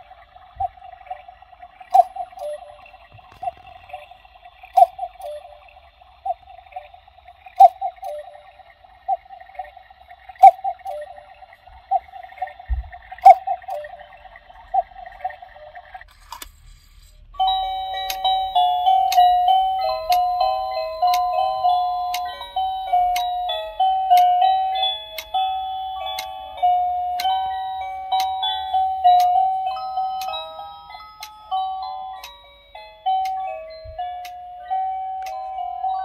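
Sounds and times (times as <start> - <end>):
electronic clock melody: 0.0 - 15.8, 17.4 - 36.0
clock mechanism whirring hum: 0.0 - 36.0
soft clock clicks: 17.9 - 20.4, 21.1 - 21.4, 22.1 - 22.4, 23.1 - 23.4, 28.2 - 28.4, 29.1 - 29.4, 30.2 - 30.5, 32.2 - 32.4, 34.2 - 34.4.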